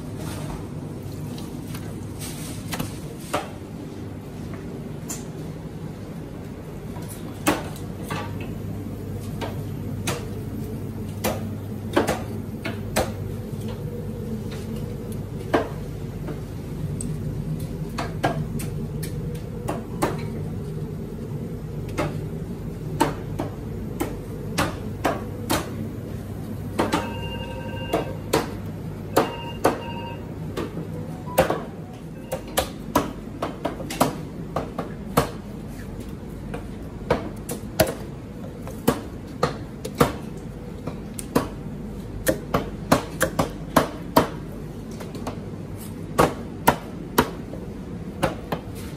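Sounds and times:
steady low hum: 0:00.0 - 0:48.9
short electronic beep: 0:26.9 - 0:28.2, 0:29.2 - 0:30.3.

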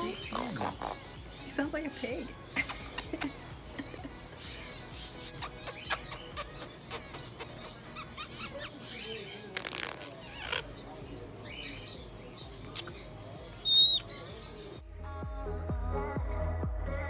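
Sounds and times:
parrot squawk: 0:00.2 - 0:01.1, 0:04.5 - 0:10.7, 0:13.6 - 0:14.3
parrot high whistle: 0:13.6 - 0:14.0.

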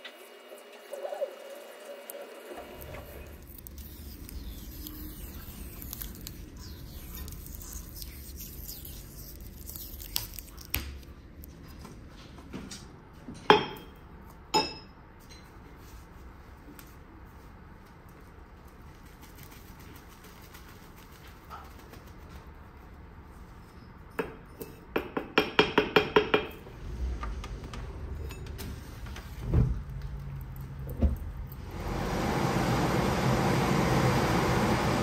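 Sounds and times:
adhesive tape crackling: 0:02.8 - 0:11.1.

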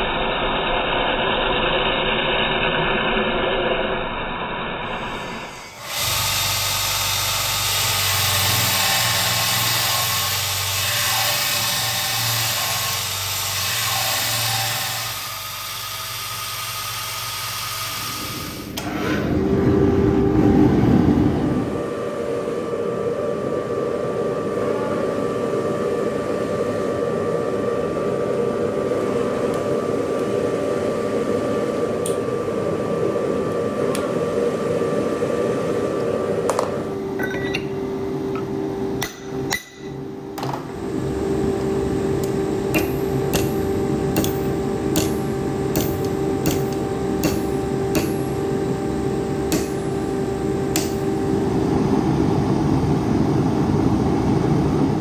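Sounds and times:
hammer striking steel on anvil: 0:39.0 - 0:40.0, 0:42.7 - 0:48.5, 0:49.5 - 0:51.2.

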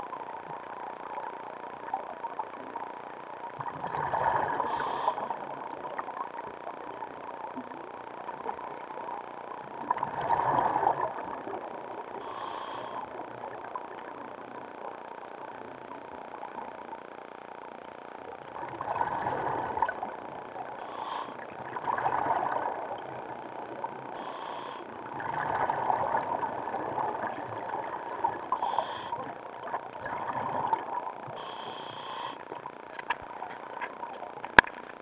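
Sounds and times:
bubbly underwater exhalations: 0:03.6 - 0:05.4, 0:09.9 - 0:11.5, 0:18.6 - 0:20.2, 0:21.0 - 0:23.5, 0:24.1 - 0:29.1, 0:30.0 - 0:31.5
hissing regulator inhalations: 0:04.7 - 0:05.3, 0:12.2 - 0:13.1, 0:20.8 - 0:21.4, 0:24.2 - 0:24.9, 0:28.5 - 0:29.3, 0:31.4 - 0:32.4.

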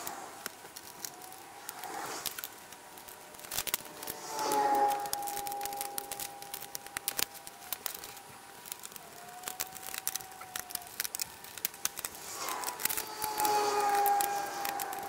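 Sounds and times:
thin steady tone: 0:00.0 - 0:09.1, 0:11.3 - 0:15.0
rapid clicks and plastic rattles: 0:05.2 - 0:15.0.

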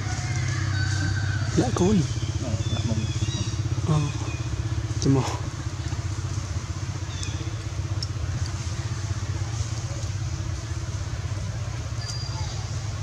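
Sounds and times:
engine droning: 0:00.0 - 0:13.0
faint high chirps: 0:12.0 - 0:12.8.

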